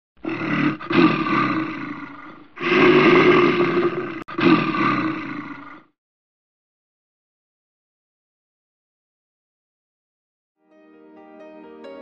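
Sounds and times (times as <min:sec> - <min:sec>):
animal roar: 0:00.2 - 0:06.0.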